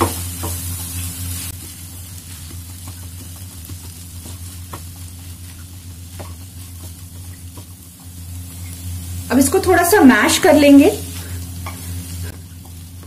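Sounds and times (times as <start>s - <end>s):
food sizzling in oil: 0.0s - 13.0s
steady low hum: 0.0s - 13.0s
spatula scraping and tapping: 1.5s - 8.8s, 11.6s - 12.9s.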